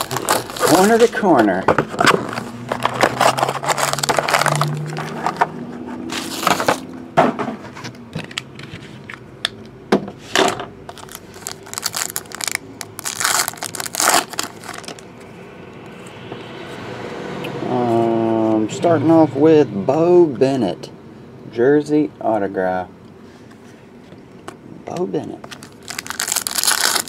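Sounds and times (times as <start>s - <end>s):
plastic wrappers crinkling and tearing: 0.0s - 1.3s, 2.0s - 5.5s, 10.9s - 15.0s, 25.4s - 27.0s.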